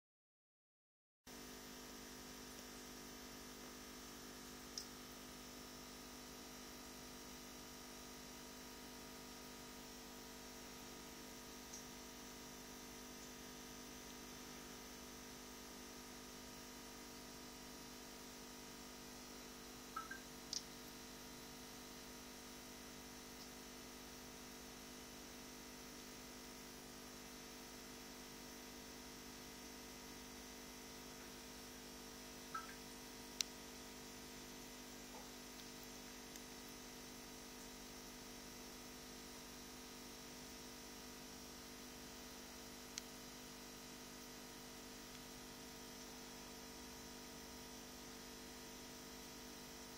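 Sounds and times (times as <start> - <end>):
faint steady hum: 1.3 - 49.9.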